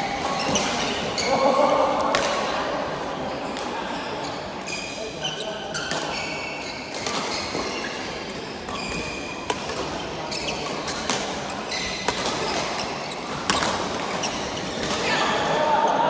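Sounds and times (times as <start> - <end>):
shoes squeaking on floor: 0.0 - 1.7, 3.3 - 15.2
rackets striking shuttlecock: 6.9 - 15.2.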